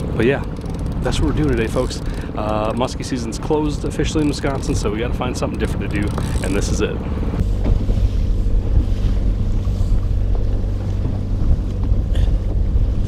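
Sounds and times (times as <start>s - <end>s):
outboard motor droning: 0.0s - 13.0s
water rushing past hull: 0.0s - 13.0s
wind noise on microphone: 6.0s - 13.0s.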